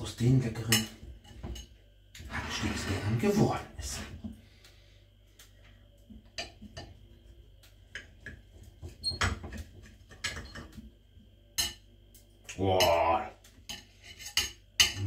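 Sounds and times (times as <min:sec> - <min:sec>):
cutlery scraping ceramic platter: 0:13.7 - 0:15.0.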